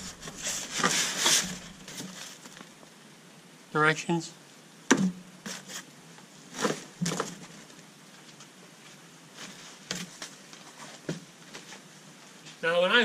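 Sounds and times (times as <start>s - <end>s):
packaging rustling and scraping: 0.0s - 2.7s, 6.5s - 7.8s.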